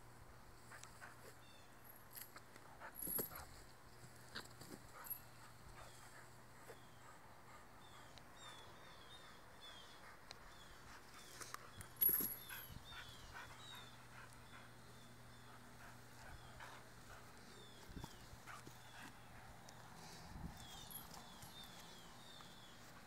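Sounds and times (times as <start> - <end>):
metal chain leash clinking: 2.9 - 3.4, 12.0 - 12.7, 20.6 - 21.7.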